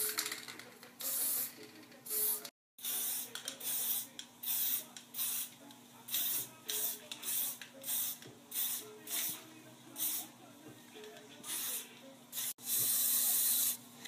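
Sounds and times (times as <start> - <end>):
spray paint can hissing bursts: 2.1 - 5.5, 6.1 - 9.4, 10.0 - 10.3, 11.5 - 13.8.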